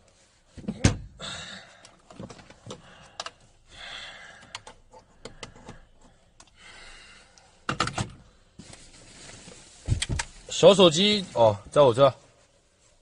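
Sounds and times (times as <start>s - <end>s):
soft rustling: 0.0s - 0.6s, 8.5s - 13.0s.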